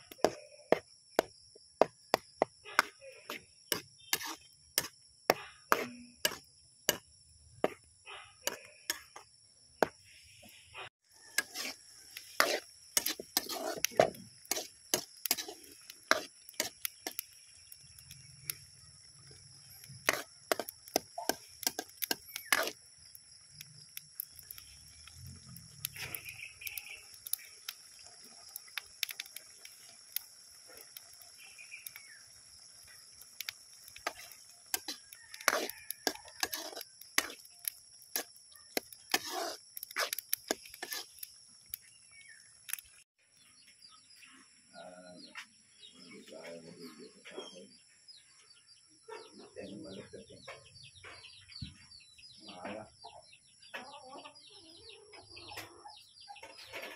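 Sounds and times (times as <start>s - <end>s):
metal ladle scraping a pot: 2.8s - 7.0s, 11.3s - 17.2s, 20.0s - 22.8s, 34.0s - 41.2s.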